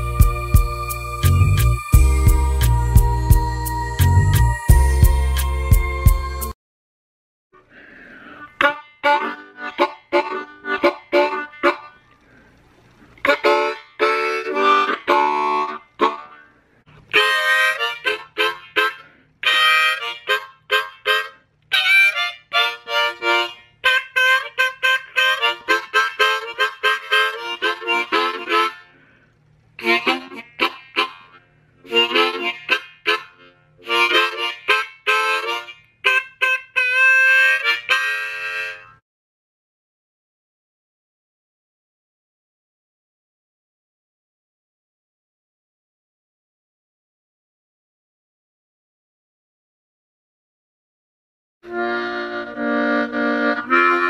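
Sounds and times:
harmonica playing bluesy phrases: 0.0s - 6.6s, 8.2s - 12.0s, 13.2s - 29.2s, 29.8s - 39.0s, 51.6s - 54.0s.

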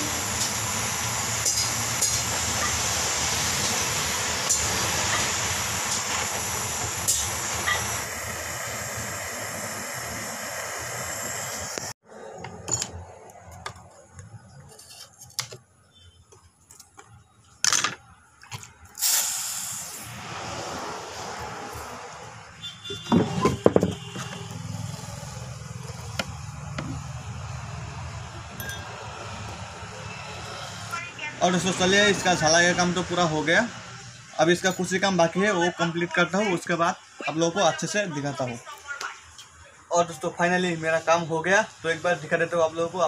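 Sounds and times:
gas torch hissing: 0.0s - 12.0s, 19.0s - 22.4s.

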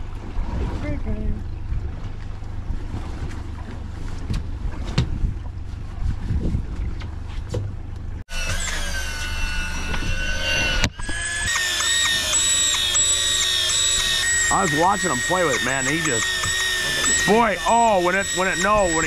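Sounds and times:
boat engine idling: 0.0s - 19.0s
wind noise: 4.1s - 7.7s
high steady whine: 8.3s - 19.0s.

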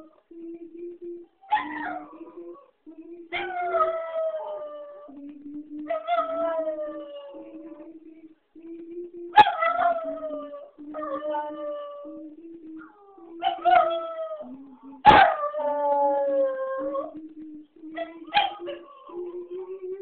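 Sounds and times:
low steady tone: 0.0s - 20.0s
dog howling: 1.4s - 2.7s, 3.3s - 5.2s, 5.8s - 7.8s, 9.4s - 17.2s, 18.0s - 19.6s.

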